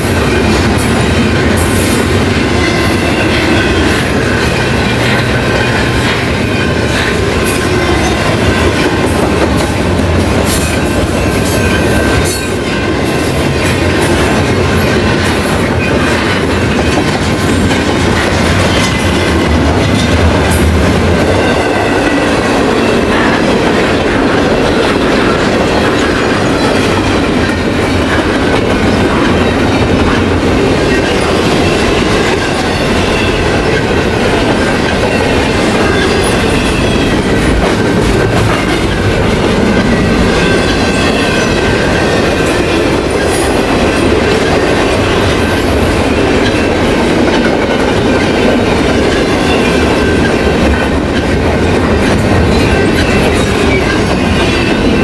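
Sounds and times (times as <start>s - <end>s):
train wheels clicking over rails: 0.0s - 55.0s.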